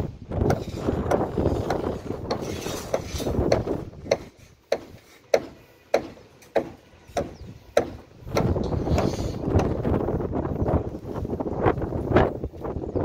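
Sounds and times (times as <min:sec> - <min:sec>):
sharp evenly spaced taps: 0:03.5 - 0:09.8.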